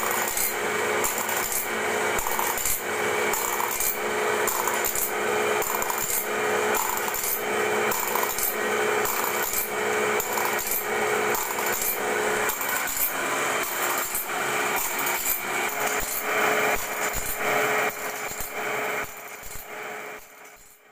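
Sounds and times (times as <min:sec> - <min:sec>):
grinding wheel rasping on steel: 0:00.0 - 0:20.8.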